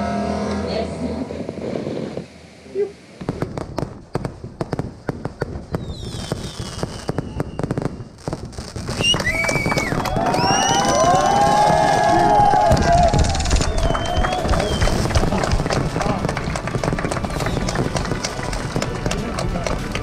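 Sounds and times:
firecracker pops and bangs: 0:03.2 - 0:20.0
people shouting: 0:09.8 - 0:14.8.

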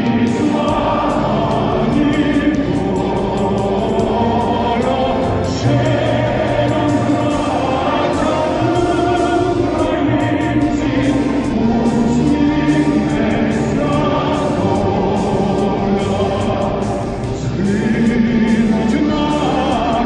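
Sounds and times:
voices singing in unison: 0:00.0 - 0:20.0.

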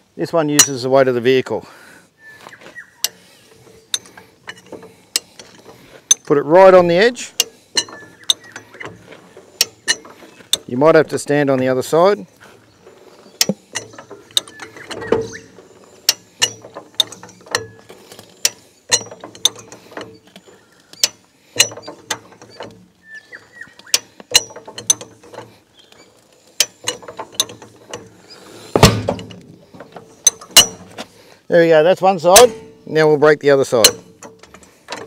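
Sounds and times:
jack ratcheting clicks: 0:12.9 - 0:23.0
tyre bead thump: 0:28.7 - 0:30.0.

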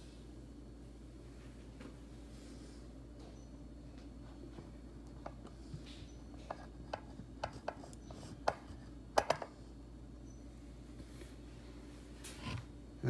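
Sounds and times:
steady low hum: 0:00.0 - 0:13.0
clicks and knocks on kitchen counter: 0:08.4 - 0:09.6.

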